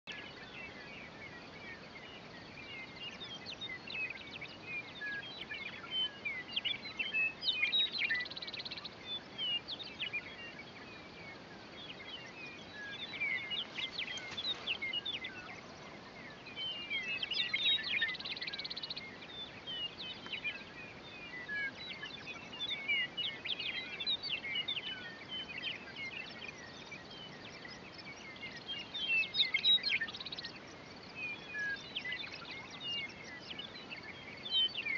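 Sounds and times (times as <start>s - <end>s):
meadowlarks singing: 0.1s - 34.9s.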